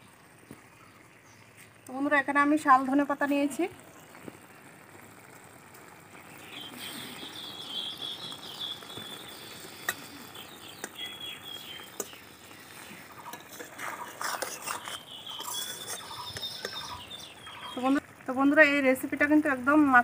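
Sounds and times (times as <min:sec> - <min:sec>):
curry simmering and sizzling: 0:00.0 - 0:20.0
high chirping: 0:06.4 - 0:18.0
sharp pops: 0:06.6 - 0:17.2.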